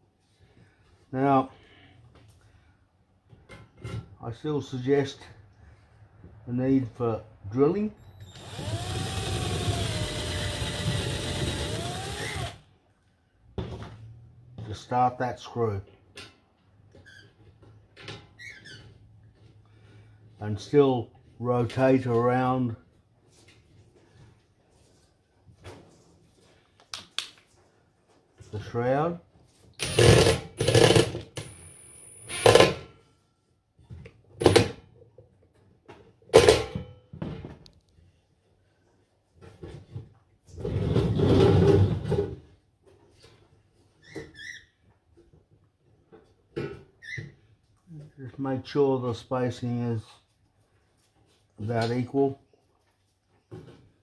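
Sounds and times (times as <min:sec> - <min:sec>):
power driver driving screw: 0:08.3 - 0:12.6, 0:29.8 - 0:31.5, 0:32.2 - 0:32.8.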